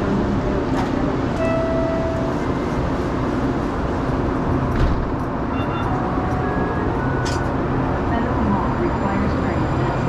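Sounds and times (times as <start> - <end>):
light-rail car humming: 0.0 - 10.0
doors closing with a thump: 4.7 - 5.9
warning tone: 5.5 - 7.3.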